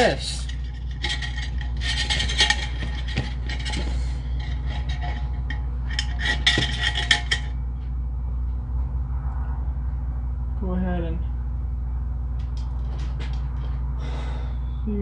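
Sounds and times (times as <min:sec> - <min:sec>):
metal spring clinking and scraping: 0:00.0 - 0:07.6
spring coils rattling: 0:00.0 - 0:07.6
steady low hum: 0:00.0 - 0:15.0.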